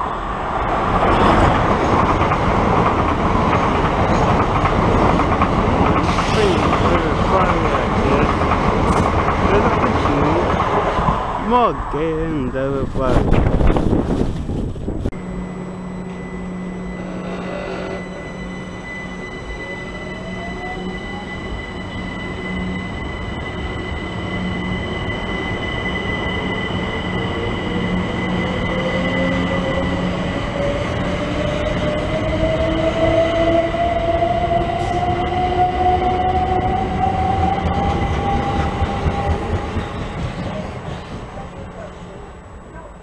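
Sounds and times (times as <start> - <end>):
steady high tone: 15.1 - 38.2
train motors whining: 15.2 - 22.8.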